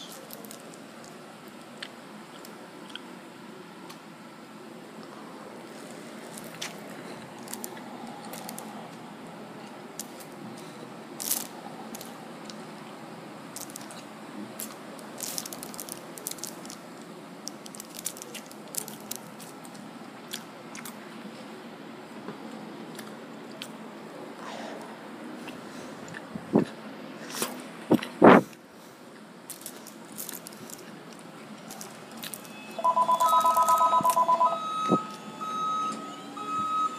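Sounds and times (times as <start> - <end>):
paper wrapper crinkling: 0.0 - 1.2, 5.7 - 8.7, 10.0 - 12.2, 13.5 - 19.8, 29.5 - 34.3
rapid electronic beeping: 32.4 - 36.9
steady higher beep: 32.5 - 36.9.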